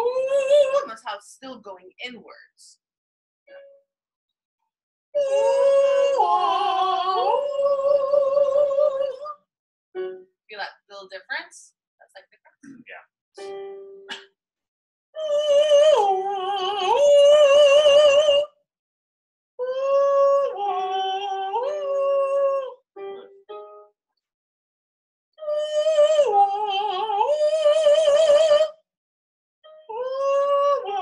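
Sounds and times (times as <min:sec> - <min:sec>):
person singing vocal exercise: 0:05.2 - 0:09.4, 0:19.6 - 0:22.8, 0:29.8 - 0:31.0.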